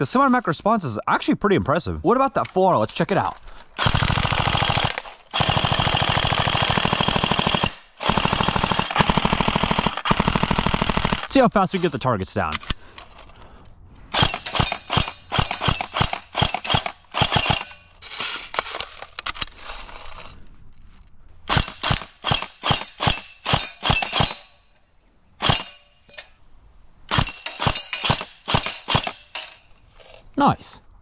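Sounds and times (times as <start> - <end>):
airsoft rifle firing bursts: 3.8 - 11.4, 14.1 - 17.7, 21.5 - 24.5, 25.4 - 25.8, 27.1 - 29.5.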